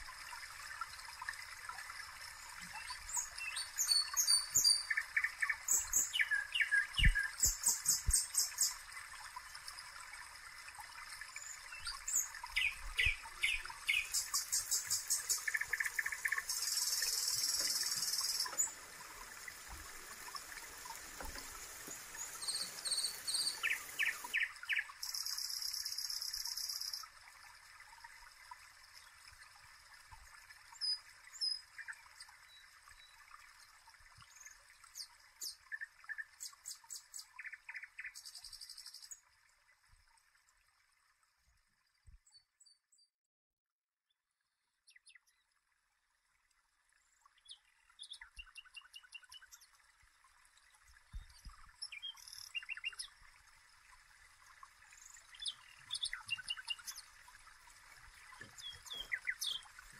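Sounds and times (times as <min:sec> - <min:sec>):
faint steady hiss: 0:00.0 - 0:42.2
birds chirping and singing: 0:58.5 - 0:59.7.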